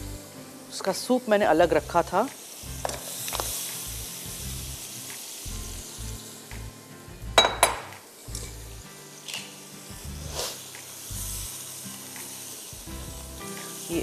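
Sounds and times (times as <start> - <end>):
faint background music: 0.0 - 14.0
meat sizzling in hot oil: 0.0 - 14.0.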